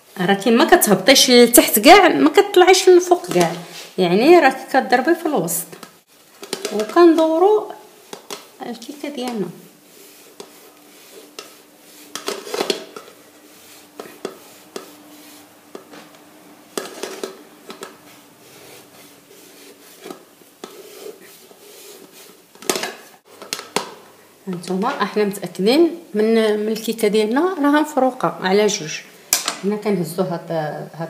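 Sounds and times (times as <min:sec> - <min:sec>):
knife scraping glass plate: 0:16.8 - 0:22.4.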